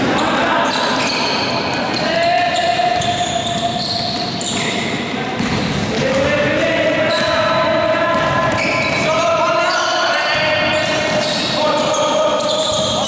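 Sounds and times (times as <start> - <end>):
players calling out: 0.0 - 13.0
basketball dribbling on court: 5.4 - 7.4.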